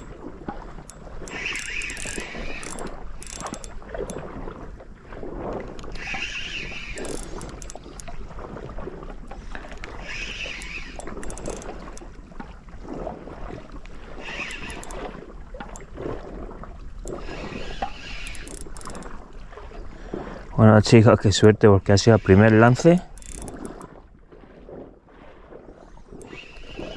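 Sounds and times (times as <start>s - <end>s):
spinning reel being cranked: 0.0s - 4.2s, 5.9s - 8.1s, 9.8s - 12.1s, 14.2s - 15.9s, 17.0s - 19.2s, 22.0s - 23.9s, 26.1s - 26.9s
reel drag giving line: 0.0s - 20.5s, 21.1s - 26.9s
sea noise: 0.0s - 26.9s
wind: 0.0s - 26.9s.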